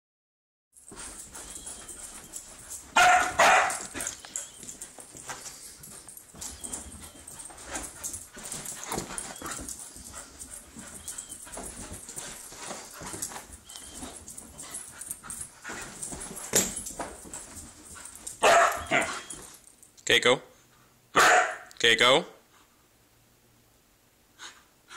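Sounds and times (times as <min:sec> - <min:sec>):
puppy scuffling on cushions: 0:00.8 - 0:19.6
puppy barking: 0:03.0 - 0:04.2, 0:18.4 - 0:19.3, 0:21.2 - 0:21.7.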